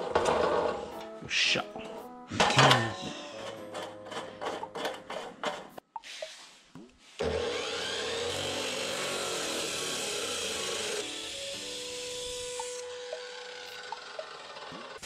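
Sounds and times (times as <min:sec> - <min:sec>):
cut-off saw grinding steel: 0:07.2 - 0:15.0.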